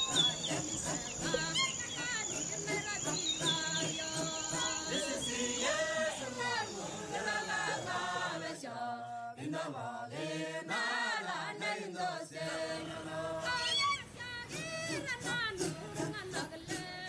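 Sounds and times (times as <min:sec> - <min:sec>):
voices chanting gliding notes: 0:00.0 - 0:09.0.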